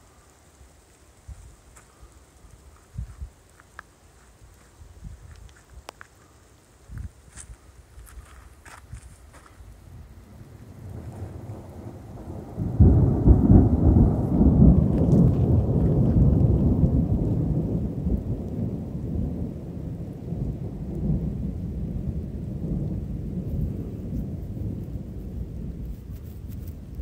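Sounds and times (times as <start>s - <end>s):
rain falling: 0.0s - 27.0s
thunder clap rumbling: 9.9s - 27.0s.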